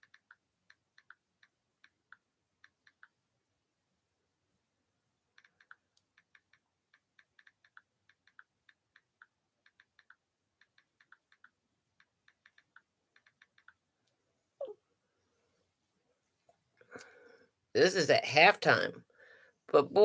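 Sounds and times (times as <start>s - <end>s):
faint keyboard typing: 0.0s - 3.2s, 5.3s - 14.2s.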